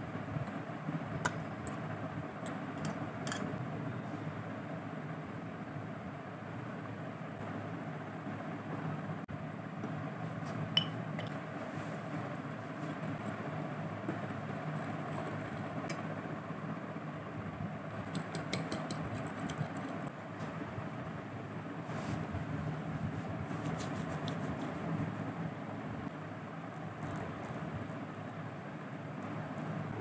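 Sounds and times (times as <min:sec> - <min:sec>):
fork clicking on dishes: 0:18.0 - 0:19.9.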